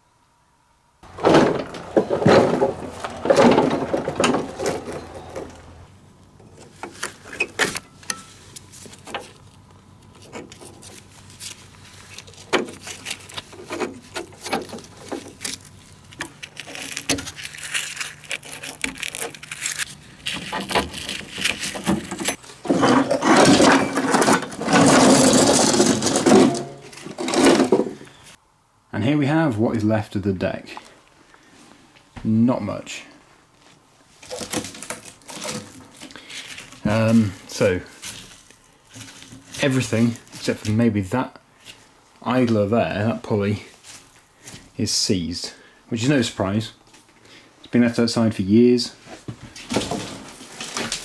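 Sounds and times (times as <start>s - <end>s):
metal clanks and rattles: 1.0s - 5.9s, 20.4s - 28.0s
metal deck dragged across gravel: 1.0s - 9.4s, 19.8s - 28.3s.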